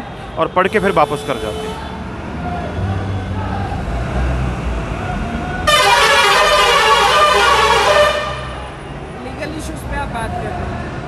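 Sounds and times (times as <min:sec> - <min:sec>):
road traffic rumble: 0:00.0 - 0:11.0
vehicle horn blast: 0:00.6 - 0:01.8, 0:05.7 - 0:08.7.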